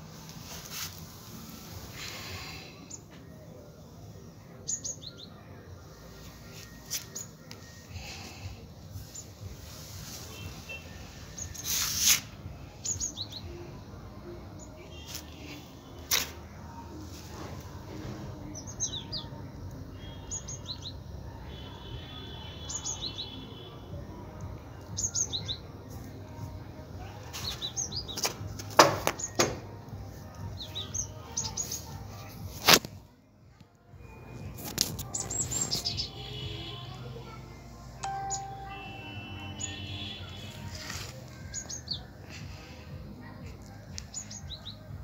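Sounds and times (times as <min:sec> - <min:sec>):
small birds chirping: 0:12.7 - 0:13.6, 0:22.6 - 0:23.7, 0:24.8 - 0:25.7, 0:27.3 - 0:28.6, 0:30.4 - 0:32.3, 0:35.0 - 0:36.8, 0:39.4 - 0:42.8.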